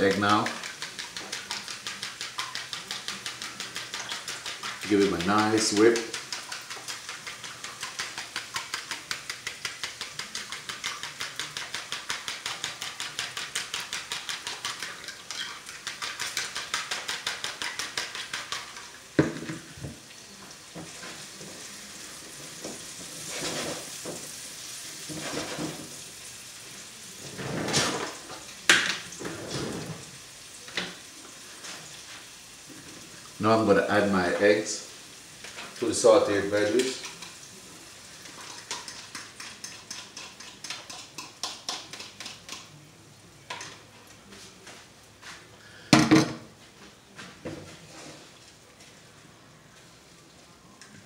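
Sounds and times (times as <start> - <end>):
spatula clattering against pan: 0.0 - 18.9, 38.3 - 42.7
eggs whisked in glass bowl: 0.0 - 19.2, 35.7 - 42.8
vegetables sizzling in frying pan: 17.5 - 27.4, 28.0 - 41.6.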